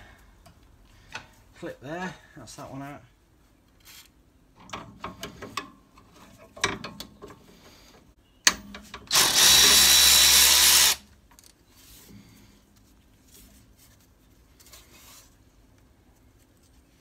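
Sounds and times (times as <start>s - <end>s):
power tool running: 9.1s - 11.0s.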